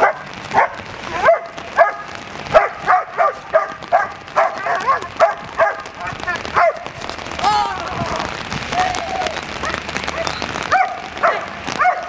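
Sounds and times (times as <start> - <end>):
dog barking rapidly: 0.0 - 7.0, 9.6 - 12.0.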